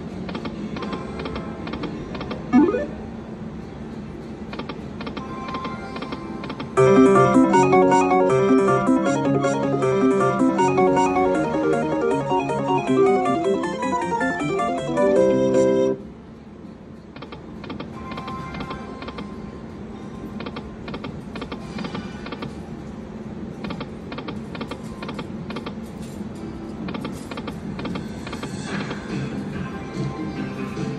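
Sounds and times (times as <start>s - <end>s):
casino background noise: 0.4s - 3.0s, 6.0s - 16.0s
slot machine clicks: 2.3s - 3.0s, 6.8s - 16.0s
slot machine jingle: 2.6s - 3.1s, 6.8s - 16.0s.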